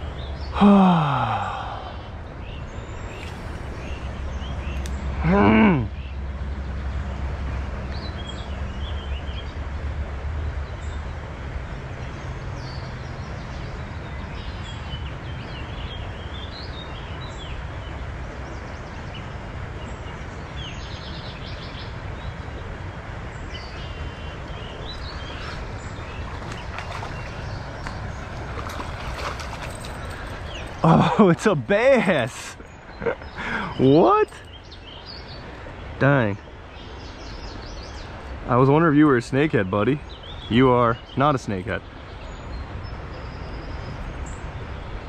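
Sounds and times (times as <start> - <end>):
birds chirping: 0.0 - 9.8, 10.4 - 45.0.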